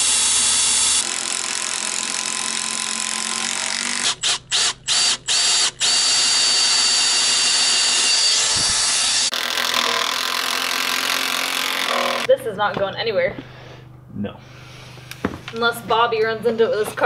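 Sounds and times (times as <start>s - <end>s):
cordless drill boring into wood: 0.0s - 12.3s.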